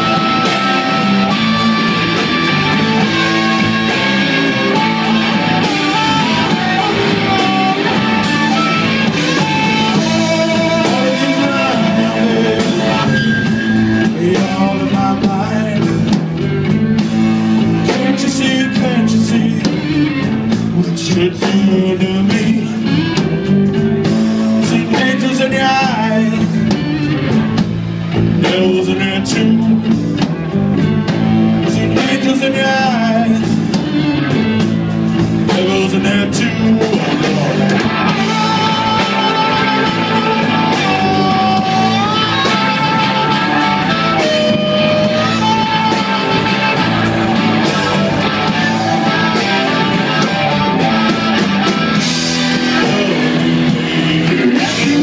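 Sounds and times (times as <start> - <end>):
harmonica notes bending: 0.0 - 14.1, 37.3 - 52.7
person singing: 0.0 - 16.2, 17.6 - 23.2, 24.6 - 27.3, 28.3 - 30.2, 31.4 - 33.8, 35.4 - 55.0
blues-rock band playing live: 0.0 - 55.0.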